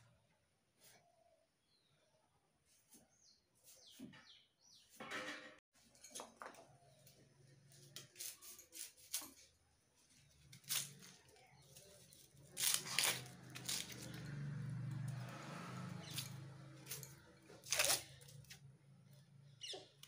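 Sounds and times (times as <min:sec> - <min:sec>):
vegetables being cut on a blade: 0:07.8 - 0:09.5, 0:10.4 - 0:18.7
onion skin tearing scrapes: 0:07.8 - 0:09.6, 0:10.2 - 0:14.4, 0:15.5 - 0:18.7.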